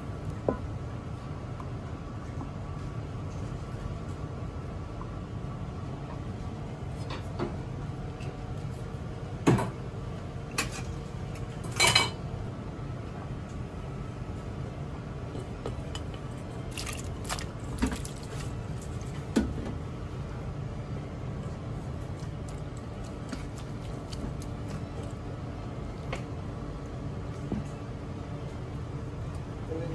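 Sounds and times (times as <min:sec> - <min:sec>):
steady low hum: 0:00.0 - 0:29.9.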